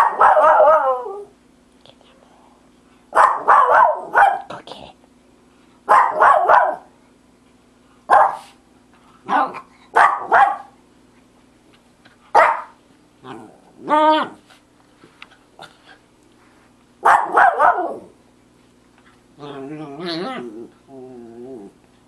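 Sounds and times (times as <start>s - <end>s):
dog barking: 0.0s - 1.1s, 3.1s - 4.5s, 5.9s - 6.9s, 8.1s - 8.6s, 9.3s - 10.8s, 12.3s - 12.8s, 17.0s - 18.1s
faint steady hum: 0.0s - 22.0s.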